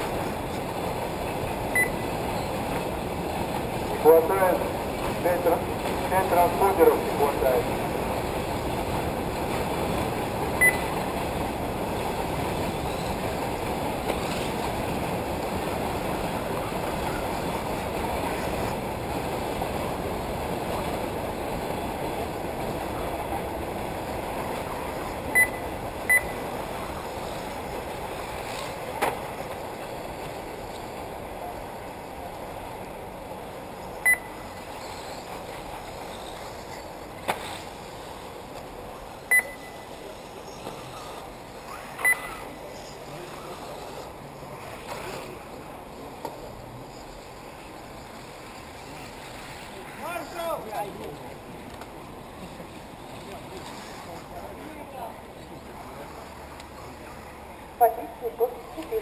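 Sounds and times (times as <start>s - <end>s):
steady rushing noise: 0.0s - 59.0s
short high electronic beeps: 10.6s - 10.9s, 25.4s - 26.4s, 34.0s - 34.4s, 39.3s - 40.0s, 42.0s - 42.4s.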